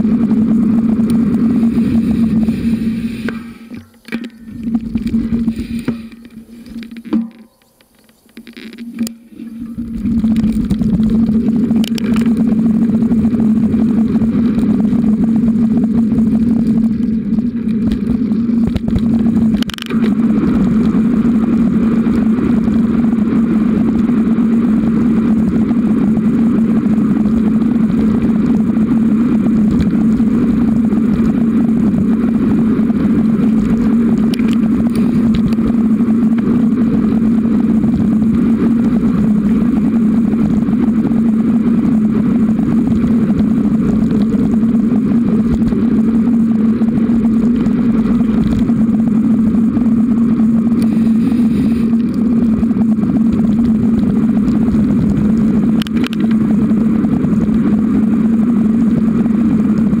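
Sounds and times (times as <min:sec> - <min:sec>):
bicycle tyres rolling on pavement: 0:00.0 - 1:00.0.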